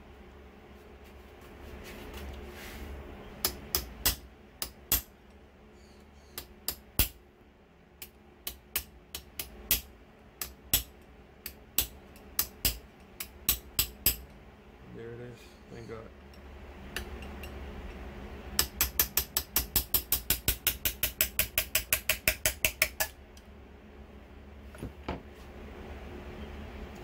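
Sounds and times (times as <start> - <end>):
hammer tapping metal punch: 3.4 - 5.1, 18.6 - 23.2.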